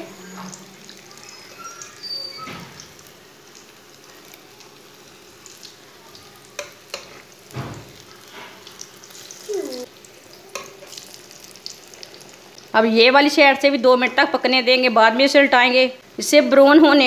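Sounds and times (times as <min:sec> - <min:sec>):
deep-frying sizzle in oil: 0:00.0 - 0:17.0
short falling squeak: 0:01.2 - 0:02.8
spatula clicking against pan: 0:06.6 - 0:07.1.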